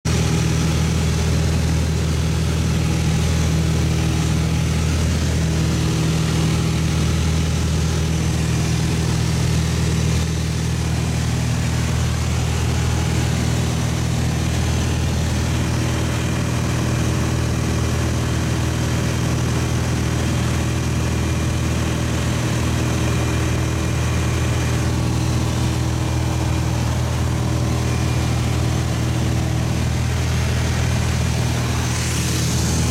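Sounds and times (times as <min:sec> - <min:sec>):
light airplane engine drone: 0:00.1 - 0:32.9.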